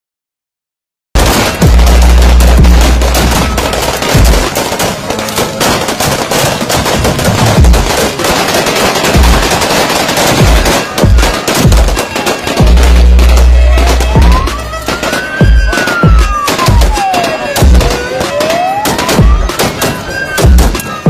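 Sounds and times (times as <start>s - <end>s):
music with heavy bass: 1.2s - 4.6s, 6.9s - 8.0s, 9.1s - 9.6s, 10.4s - 17.0s, 17.6s - 18.2s, 20.4s - 20.8s
rapid gunshots: 1.2s - 21.0s.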